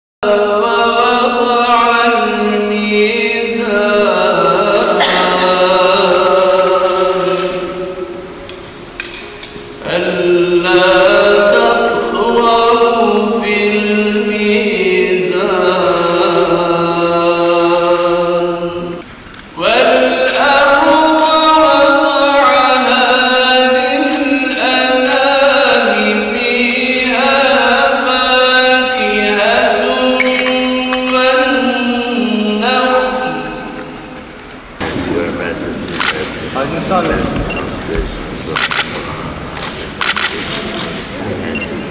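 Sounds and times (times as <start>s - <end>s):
man chanting: 0.2s - 8.1s, 9.8s - 19.0s, 19.6s - 34.0s.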